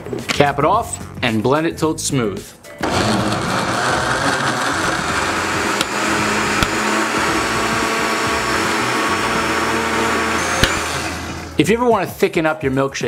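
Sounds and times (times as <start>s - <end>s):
blender motor running: 2.8s - 11.6s.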